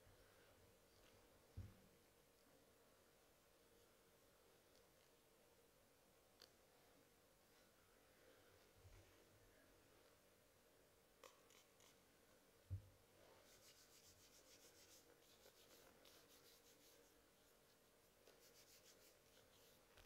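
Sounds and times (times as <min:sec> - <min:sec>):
hands rubbing together: 0:13.4 - 0:17.5, 0:18.2 - 0:19.9.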